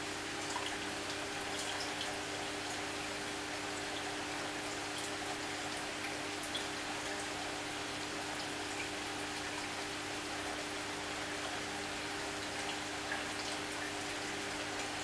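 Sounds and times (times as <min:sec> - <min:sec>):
circulating water fizz and trickle: 0:00.0 - 0:15.0
drip-like ticks: 0:03.8 - 0:07.3.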